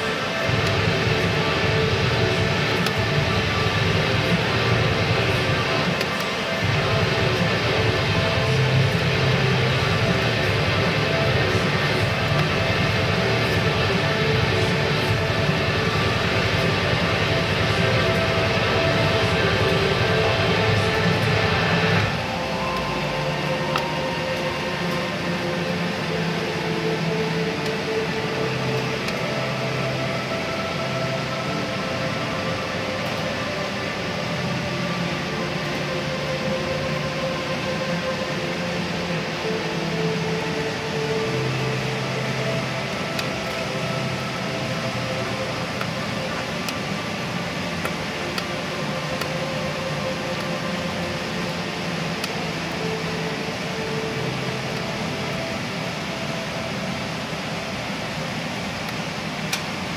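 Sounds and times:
wood furnace rushing with hum: 0.0 - 35.7.

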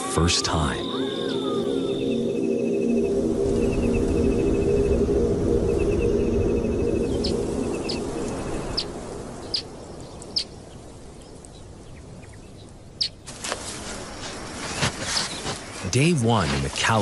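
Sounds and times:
birds chirping: 0.0 - 17.0
soft scuffing: 13.3 - 15.9.

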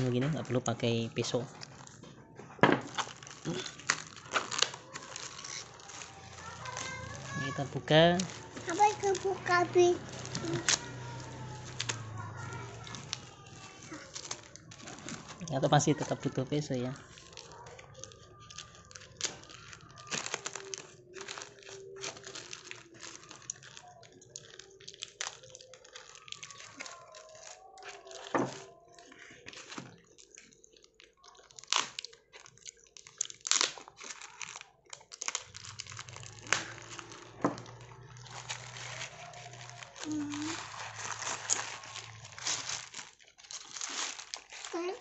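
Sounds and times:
plastic wrap crinkling and tearing: 0.0 - 45.0
knife slitting plastic wrap: 2.9 - 16.0, 17.2 - 23.8, 33.4 - 45.0.

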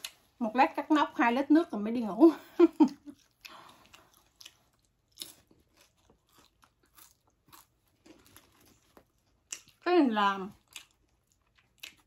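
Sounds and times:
crunching and chewing food: 2.8 - 12.0.

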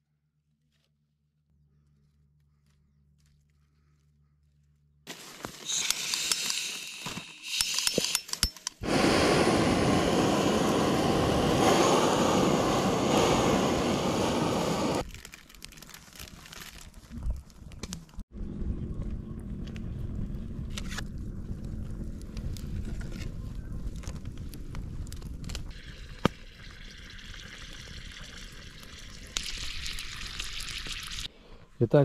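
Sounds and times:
gas torch hissing: 5.6 - 8.2, 8.8 - 15.0
wood fire crackling: 8.8 - 18.2, 19.4 - 31.3.

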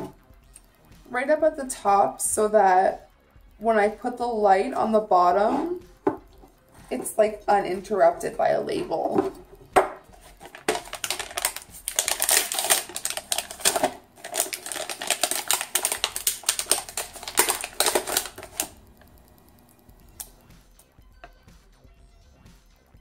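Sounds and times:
sticker label peeling crackle: 10.4 - 20.3.

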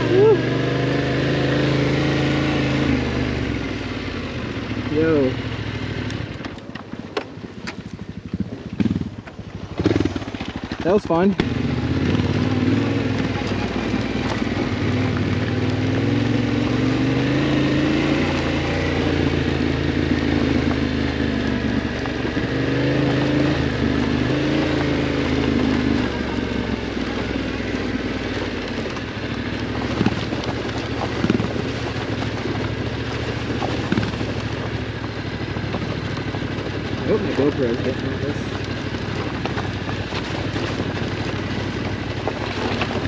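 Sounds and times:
motorcycle engine pulling: 0.0 - 43.0.

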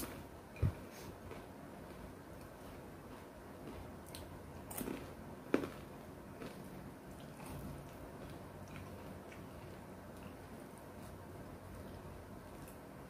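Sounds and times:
person chewing food: 0.0 - 12.9
food crunching: 1.2 - 11.1.

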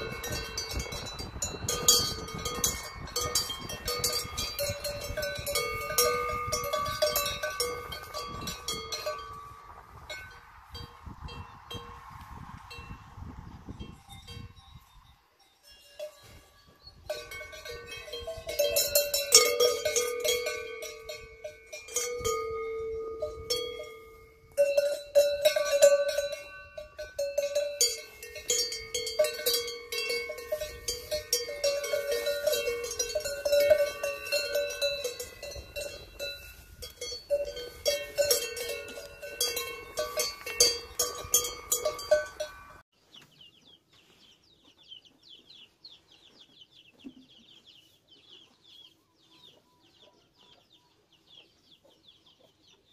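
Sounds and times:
cowbells clanking: 0.0 - 12.0, 13.8 - 42.8.

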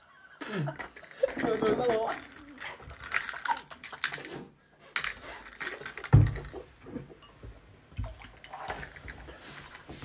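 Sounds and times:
knocks and handling noises: 0.8 - 10.0.

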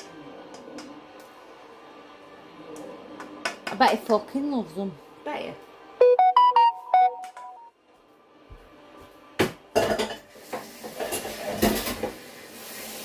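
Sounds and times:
pans and cutlery clattering: 9.7 - 12.2.

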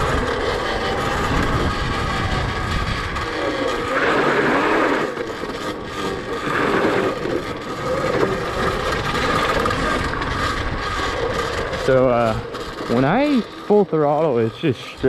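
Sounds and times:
electric motor whining: 0.0 - 15.0
tyres rolling on dirt: 0.0 - 15.0.

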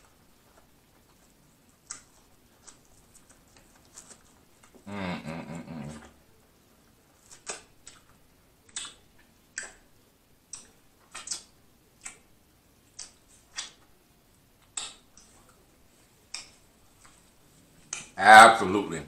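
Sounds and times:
wet chewing clicks and smacks: 0.0 - 4.8, 7.1 - 14.0, 14.6 - 15.6.

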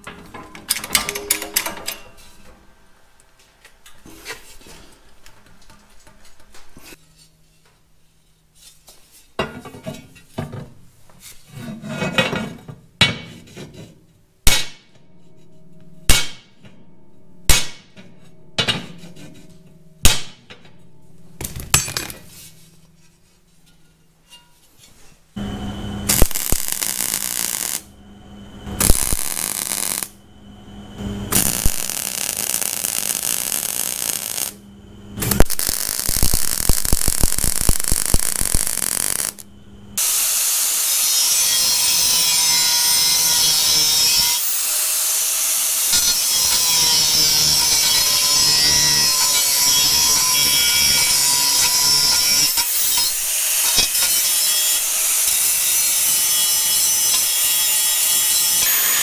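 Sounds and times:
hammer striking steel: 0.0 - 2.5, 14.4 - 24.6, 45.9 - 57.4
welder crackling: 25.4 - 27.9, 28.6 - 30.2, 31.2 - 34.6, 35.2 - 59.0.

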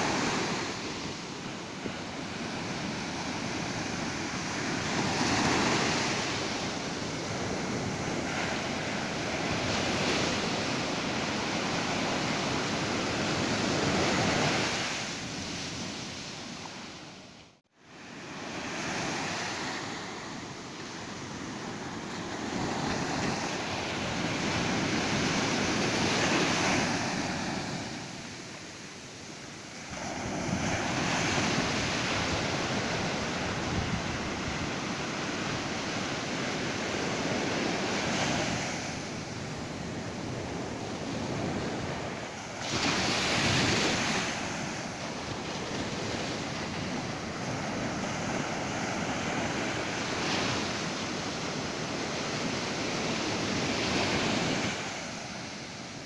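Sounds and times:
surf breaking on sandy beach: 29.7 - 56.0.

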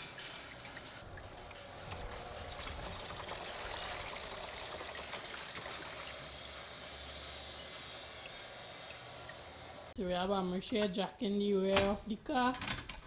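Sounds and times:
liquid pouring into a pan: 0.2 - 6.5.

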